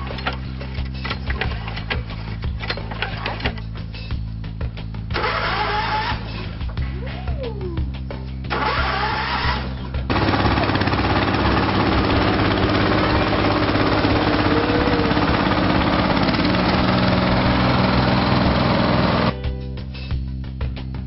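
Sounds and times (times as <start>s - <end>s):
engine cranking: 0.0s - 3.9s, 5.1s - 6.8s, 8.5s - 19.4s
mower engine running loud: 8.5s - 19.4s.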